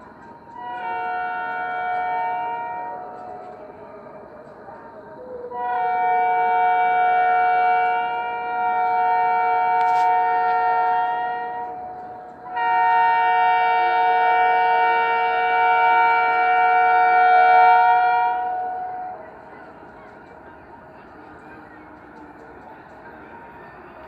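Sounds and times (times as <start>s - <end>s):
locomotive horn blasts: 0.5s - 3.7s, 5.5s - 19.8s.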